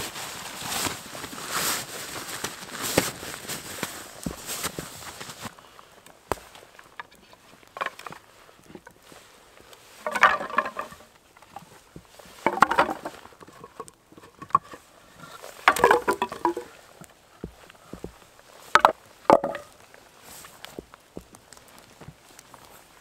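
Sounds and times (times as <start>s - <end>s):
wooden logs clattering onto pile: 6.3s - 9.0s, 9.9s - 22.5s.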